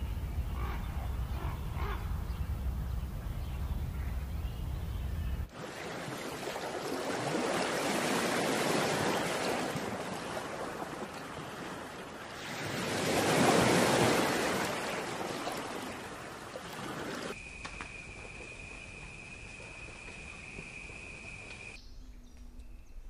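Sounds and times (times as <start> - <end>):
surf washing onto beach: 5.5 - 17.4.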